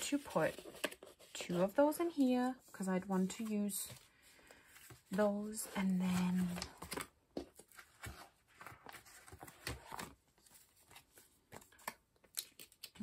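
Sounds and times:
plastic sleeves rustling: 0.0s - 13.0s.

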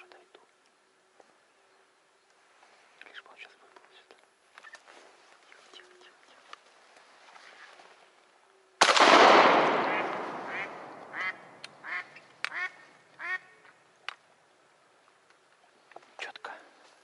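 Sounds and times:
shotgun shot: 8.8s - 11.2s
duck quacking: 9.8s - 13.5s.

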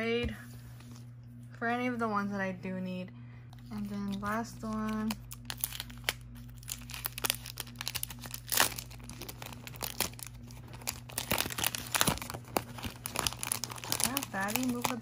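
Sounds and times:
plastic sleeve crinkling: 3.6s - 15.0s.

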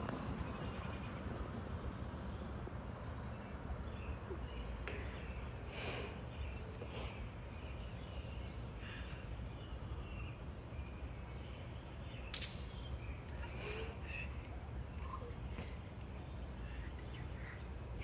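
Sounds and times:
bird chirps: 2.4s - 18.0s.

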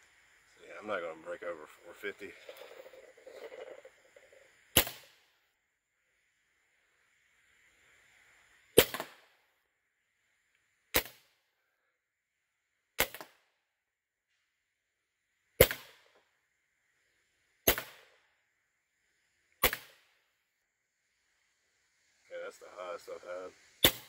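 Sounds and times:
air rifle shots: 4.7s - 5.2s, 8.8s - 9.3s, 10.9s - 11.2s, 13.0s - 13.4s, 15.6s - 16.1s, 17.7s - 18.1s, 19.6s - 20.1s.

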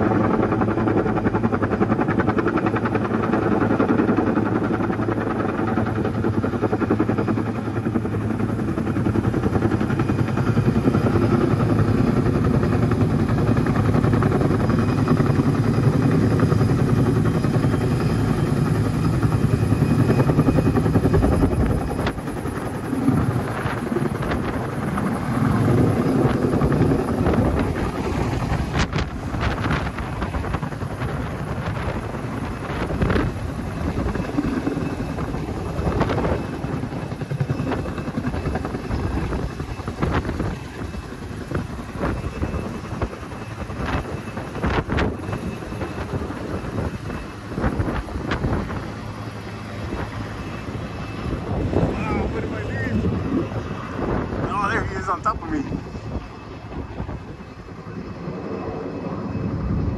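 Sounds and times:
helicopter rotor and engine: 0.0s - 59.9s.

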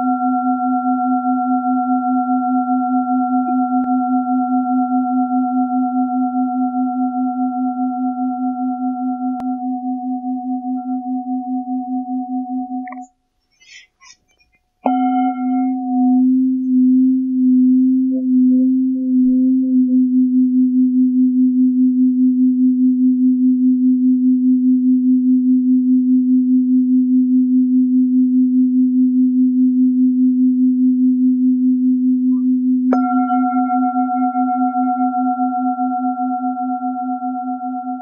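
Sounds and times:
singing bowl pulsing low tone: 0.0s - 13.1s, 14.8s - 38.0s
struck singing bowl ringing: 14.9s - 17.4s, 32.9s - 36.4s.

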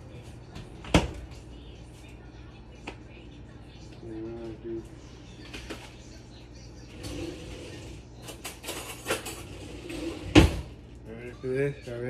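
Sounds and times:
kitchen items rustling: 6.9s - 10.8s.

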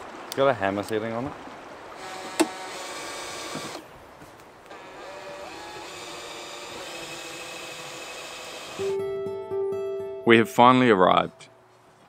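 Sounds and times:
cordless drill boring into metal: 2.0s - 3.8s, 4.7s - 8.9s.

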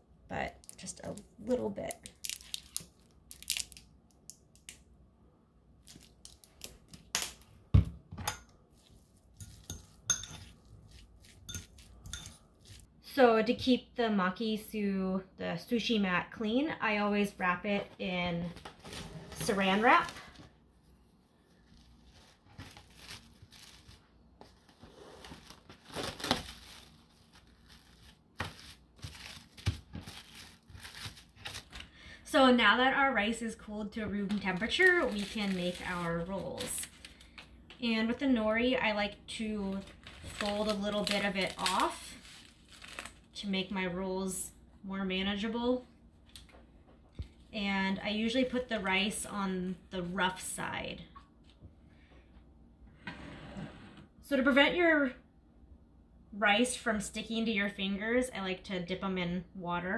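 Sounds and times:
plastic wrap crinkling and tearing: 1.8s - 3.9s, 5.8s - 7.1s, 21.6s - 32.0s, 34.4s - 37.3s, 39.7s - 43.4s
fork scraping in a bowl: 9.1s - 12.8s.

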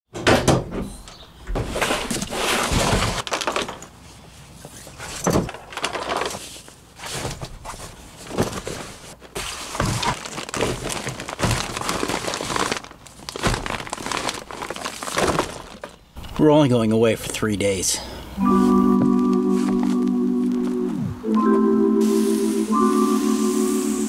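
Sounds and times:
bags rustling and shuffling: 1.8s - 16.1s, 18.5s - 20.9s
bags thudding on plastic bed liner: 8.3s - 16.0s.

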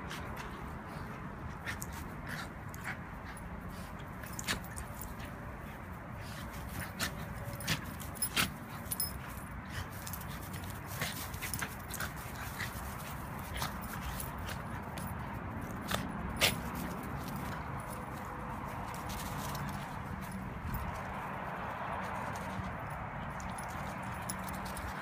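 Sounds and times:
dogs scuffling: 0.1s - 25.0s.

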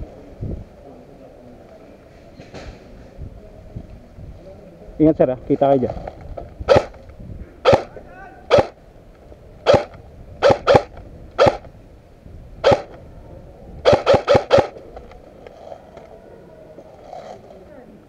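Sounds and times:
airsoft gun shots: 6.7s - 7.0s, 7.6s - 7.9s, 8.5s - 8.8s, 9.7s - 11.7s, 12.6s - 13.0s, 13.8s - 14.8s.

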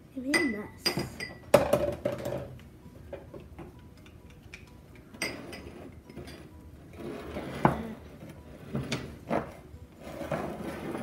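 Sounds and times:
glass bowls clinking on wooden table: 0.3s - 3.7s, 5.1s - 7.9s.

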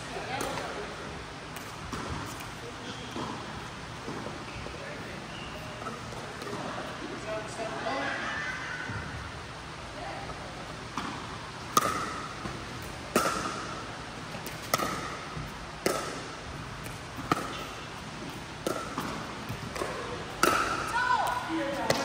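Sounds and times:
paddles hitting plastic ball: 18.3s - 22.0s.

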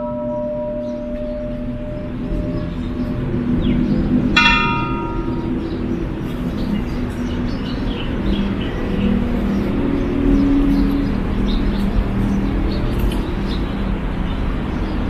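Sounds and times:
bronze bell ringing: 0.0s - 6.0s.

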